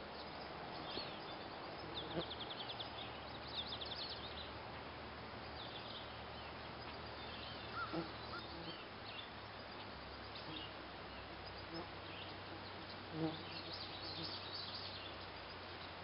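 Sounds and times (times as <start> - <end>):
distant birds chirping: 5.4 - 16.0.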